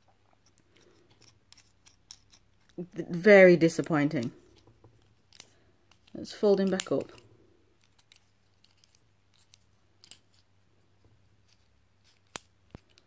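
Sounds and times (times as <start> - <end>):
plastic pieces clicking: 4.1 - 10.4.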